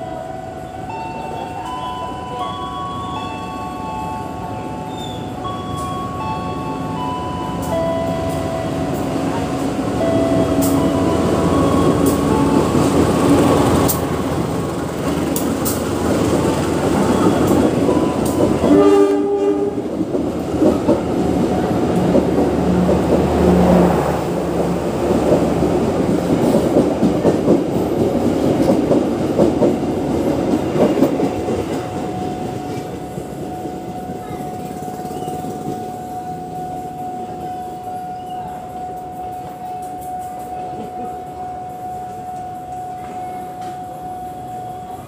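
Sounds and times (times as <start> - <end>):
locomotive engine rumble: 0.0 - 45.0
train wheels clattering over rails: 7.6 - 37.0
train horn blast: 18.6 - 19.9.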